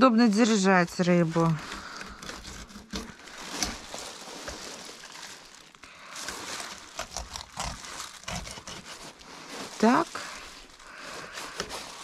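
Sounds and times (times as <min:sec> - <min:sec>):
knife slicing and scraping fish: 0:01.7 - 0:05.1, 0:06.2 - 0:12.0.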